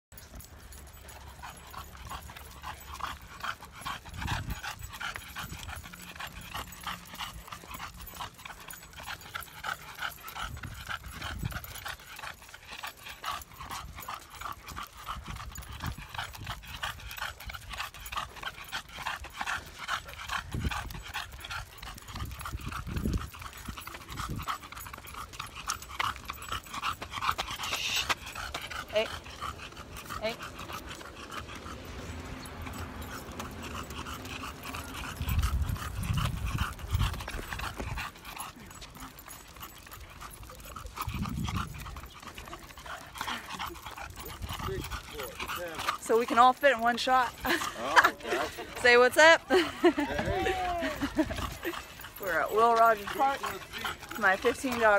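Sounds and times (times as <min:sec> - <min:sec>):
dogs panting: 0:00.1 - 0:54.9.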